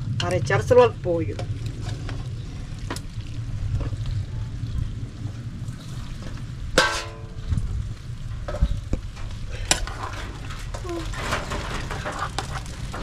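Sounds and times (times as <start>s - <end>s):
metallic clang: 6.8s - 7.4s
spaghetti stirred with metal utensils: 9.4s - 13.0s.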